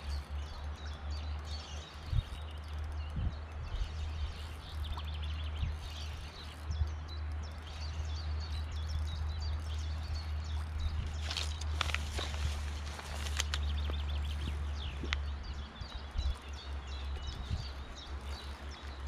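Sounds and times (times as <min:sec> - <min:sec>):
small birds chirping: 0:00.0 - 0:19.0
steady low rumble: 0:00.0 - 0:19.0
sharp clicks and rustles: 0:10.6 - 0:15.3.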